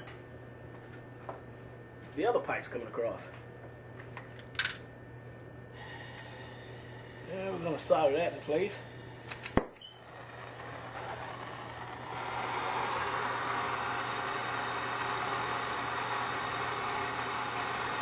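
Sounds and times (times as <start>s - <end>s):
gas torch flame hissing: 5.7s - 18.0s.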